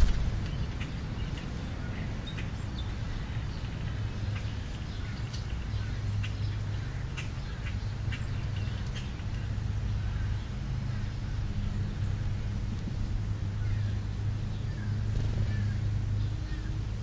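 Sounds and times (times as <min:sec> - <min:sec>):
bird chirps and calls: 0:00.0 - 0:11.1
steady low rumble: 0:00.0 - 0:17.0.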